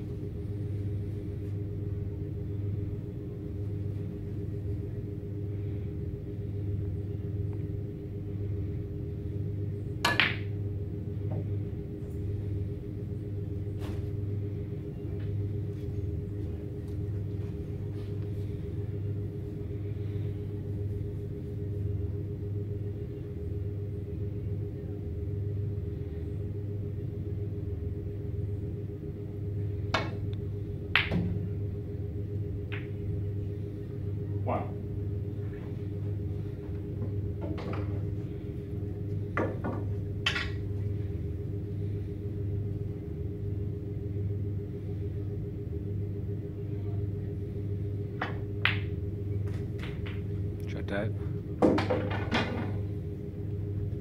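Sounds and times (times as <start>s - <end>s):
background hum: 0.0s - 54.0s
snooker balls clicking: 48.1s - 50.7s.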